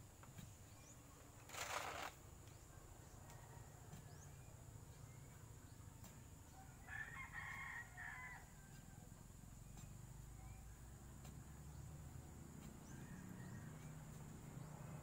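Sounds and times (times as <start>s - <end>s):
rooster crowing: 6.8s - 8.8s.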